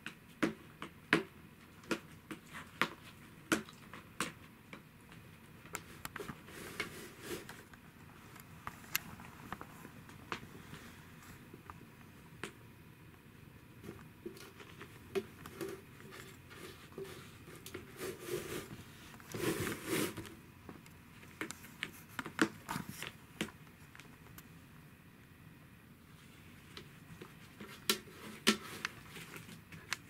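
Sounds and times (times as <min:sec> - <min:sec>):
scratchy rustle: 0:16.0 - 0:20.2.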